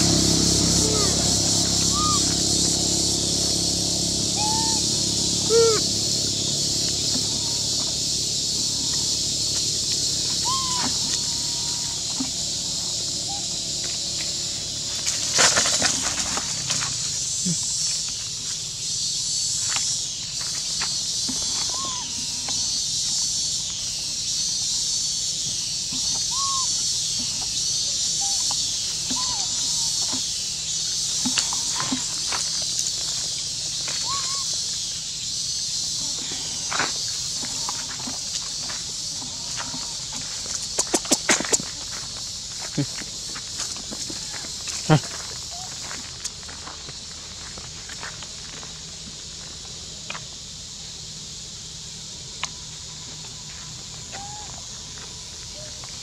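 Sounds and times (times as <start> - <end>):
insect drone: 0.0 - 56.0
short animal call: 0.7 - 2.4, 4.3 - 5.9, 10.4 - 12.3
short rising and falling calls: 4.3 - 6.0.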